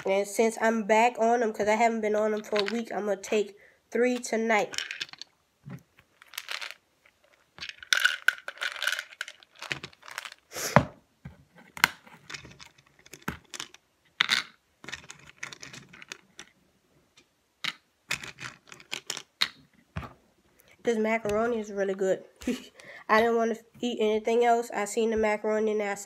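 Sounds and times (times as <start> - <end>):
pills rattling in plastic bottle: 4.7 - 5.3, 6.1 - 10.5, 12.2 - 16.6, 17.6 - 19.6
pills clicking into pill organizer: 7.6 - 10.4, 11.8 - 16.6, 17.6 - 19.6.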